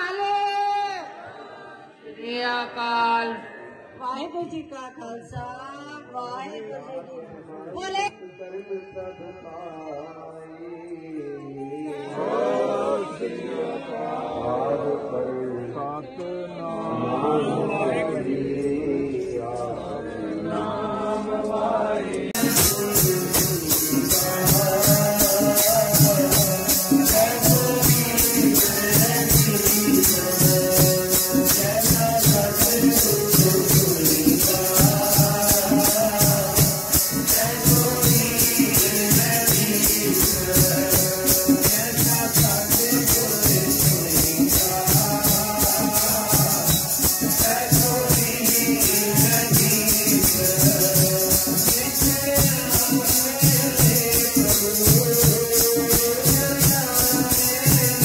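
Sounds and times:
group singing devotional chorus: 0.0 - 4.0, 11.1 - 58.0
tongs jingling rhythm: 22.4 - 58.0.

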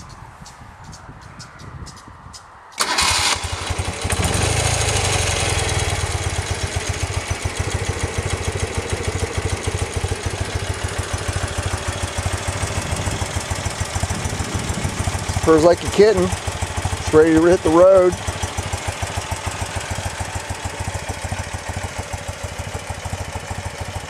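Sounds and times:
motorcycle engine starting and idling: 2.8 - 24.0.

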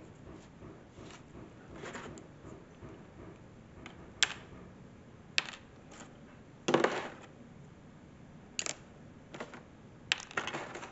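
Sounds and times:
plastic miniatures clicking on table: 8.6 - 8.8
plastic parts clattering: 8.6 - 10.9.

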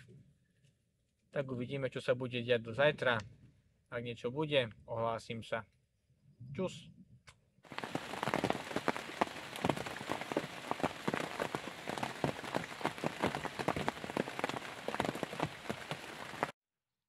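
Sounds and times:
rain falling on a lake: 7.7 - 16.5.

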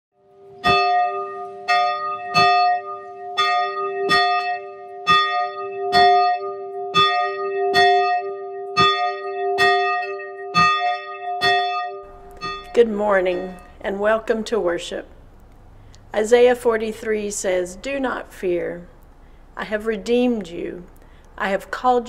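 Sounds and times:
church bell tolling: 0.6 - 13.8.

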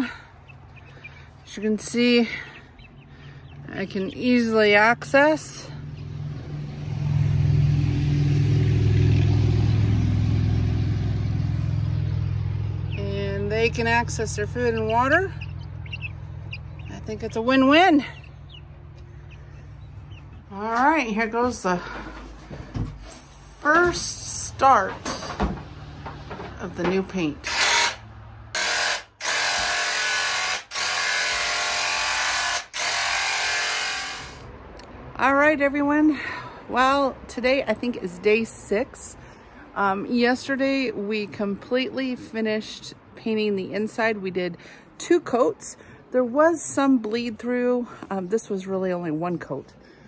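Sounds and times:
engine humming: 0.0 - 28.6
electric paint sprayer buzzing: 28.6 - 34.4.

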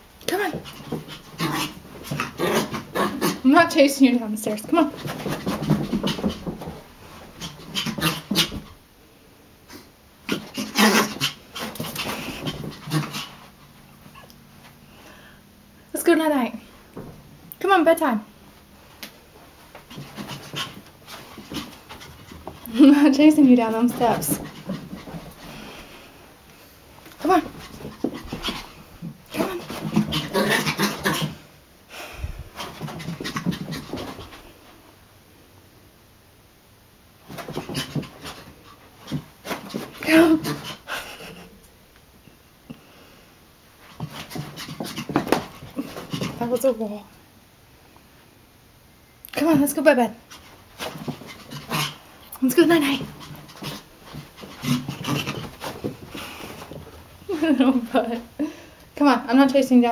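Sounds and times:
small dog panting: 0.3 - 3.4, 4.7 - 8.7, 10.3 - 14.3, 19.8 - 23.2, 23.8 - 26.0, 27.2 - 31.4, 32.5 - 34.8, 37.3 - 41.5, 43.8 - 46.5, 50.2 - 57.0.

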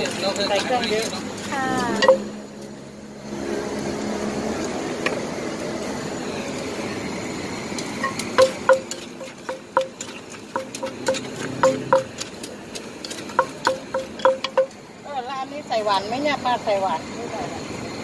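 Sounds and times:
pestle pounding in clay mortar: 0.0 - 2.5, 8.0 - 14.8
steady drone: 1.6 - 12.2.

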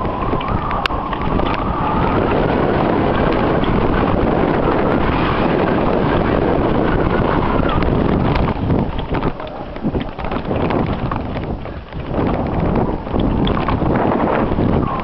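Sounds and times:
small clicks and knocks: 0.0 - 1.7, 7.6 - 13.9
bike rumble and rattle: 0.0 - 15.0
wind buffeting microphone: 0.0 - 15.0.

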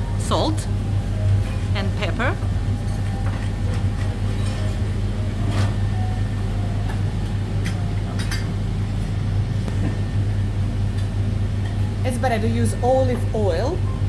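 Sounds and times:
kitchen ventilation hum: 0.0 - 14.0
utensils clinking on steel bowls: 7.6 - 8.6.

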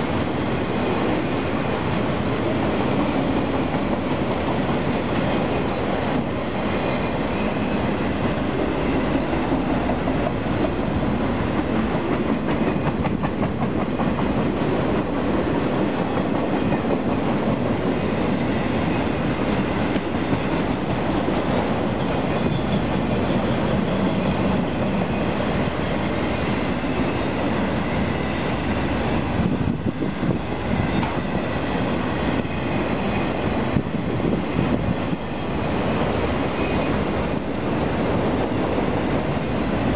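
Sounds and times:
freight train rolling past: 0.0 - 39.9
steel wheels clattering on rails: 2.7 - 25.4.

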